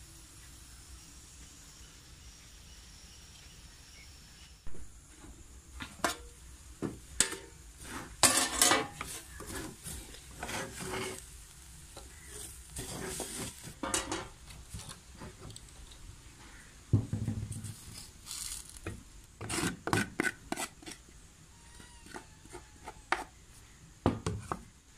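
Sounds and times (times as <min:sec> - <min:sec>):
pot and lid clattering: 0:07.2 - 0:07.5, 0:08.2 - 0:09.1, 0:13.0 - 0:14.4
spoon scraping in clay pot: 0:07.2 - 0:11.3, 0:12.0 - 0:16.0, 0:19.4 - 0:23.4.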